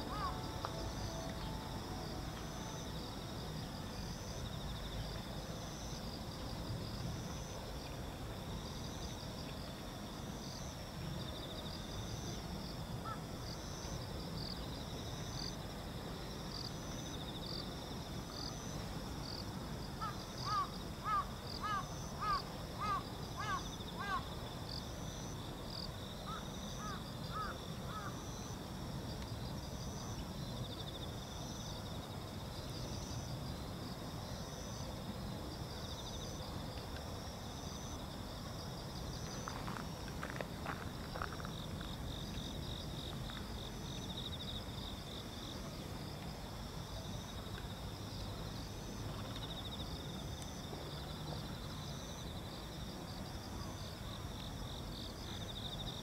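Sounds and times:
insects chirping: 0:00.0 - 0:56.0
crow cawing: 0:00.1 - 0:00.4.

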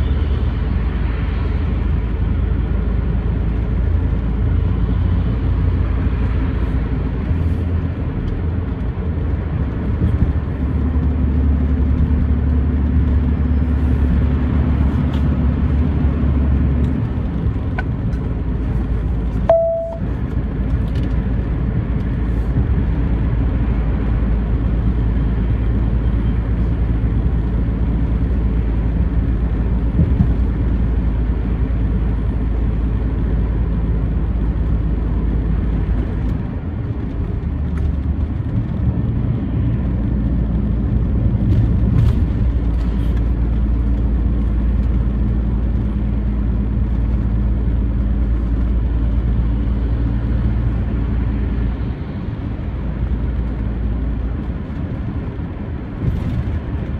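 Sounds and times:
truck engine and tyres rumbling: 0:00.0 - 0:56.9
short beep: 0:19.5 - 0:20.1.

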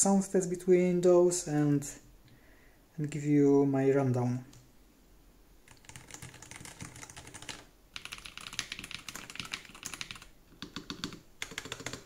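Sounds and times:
fast keyboard typing clatter: 0:05.7 - 0:12.0.

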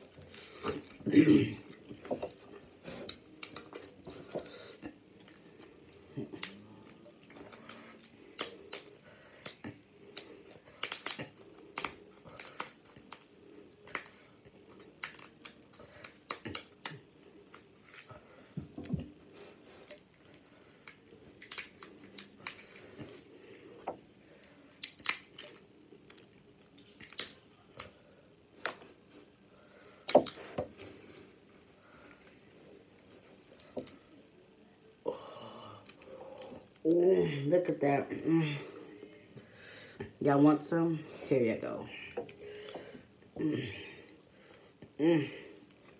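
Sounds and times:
shells cracking and snapping: 0:03.0 - 0:04.0, 0:06.2 - 0:18.1, 0:20.8 - 0:23.1, 0:24.4 - 0:28.0, 0:30.0 - 0:30.5, 0:33.5 - 0:34.0
scissors snipping shells: 0:07.4 - 0:14.2, 0:21.4 - 0:22.8, 0:24.7 - 0:25.6.

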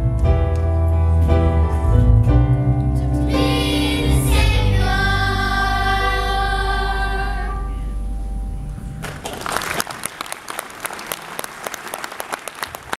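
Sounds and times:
children's choir singing: 0:03.2 - 0:07.8
audience clapping: 0:09.0 - 0:13.0.

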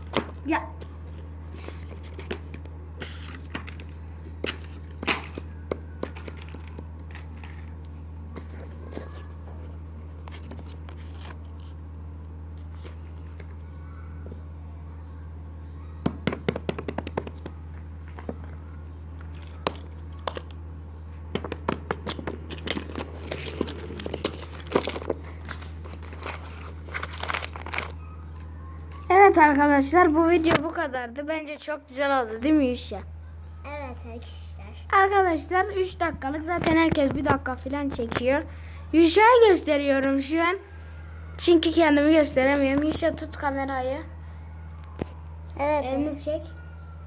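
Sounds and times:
steady low hum: 0:00.0 - 0:47.0
paper rustling and crinkling: 0:01.1 - 0:05.4, 0:06.1 - 0:11.8, 0:22.1 - 0:29.6.

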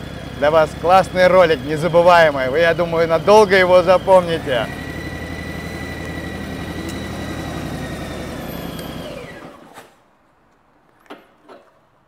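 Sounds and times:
car engine hum and whine: 0:00.0 - 0:09.6.

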